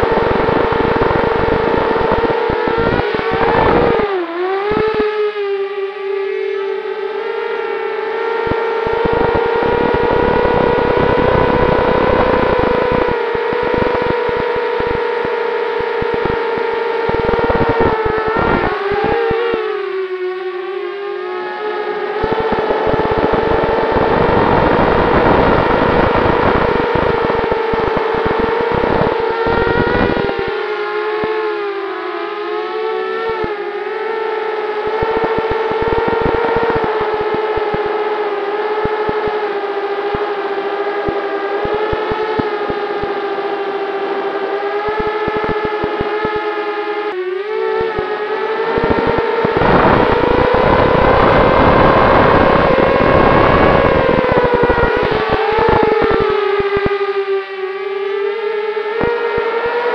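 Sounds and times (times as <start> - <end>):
wind rumble on microphone: 0.0 - 4.1, 8.4 - 19.6, 22.1 - 31.5, 34.8 - 38.0, 48.6 - 57.0
drone motors whining: 22.0 - 30.5.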